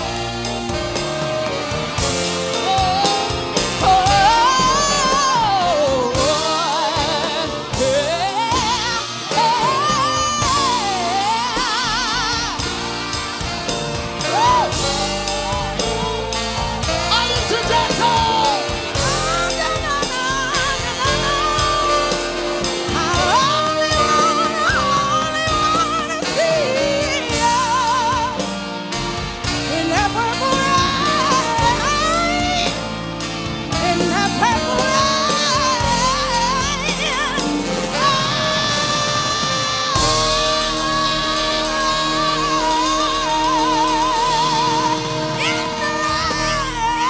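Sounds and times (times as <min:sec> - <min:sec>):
live band playing: 0:00.0 - 0:47.0
woman singing into a microphone: 0:02.3 - 0:13.4, 0:14.2 - 0:28.7, 0:29.4 - 0:47.0.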